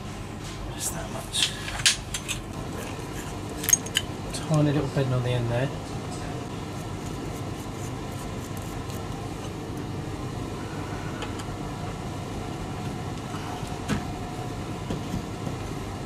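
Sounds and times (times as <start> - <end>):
low machine rumble: 9.1 - 16.0.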